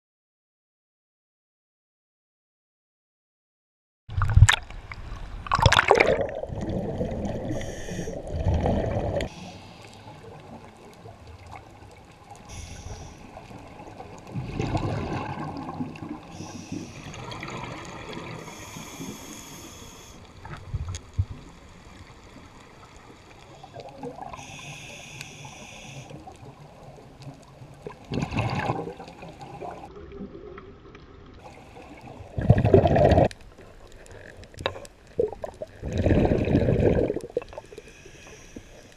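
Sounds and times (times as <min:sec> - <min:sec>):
water splashing and sloshing: 0:04.1 - 0:24.7, 0:26.1 - 0:38.9
bubbles from divers exhaling: 0:05.5 - 0:09.3, 0:13.7 - 0:16.3, 0:27.8 - 0:30.8, 0:31.8 - 0:33.5, 0:35.2 - 0:37.6
muffled underwater noise: 0:12.3 - 0:14.3, 0:16.2 - 0:20.4, 0:23.5 - 0:26.2.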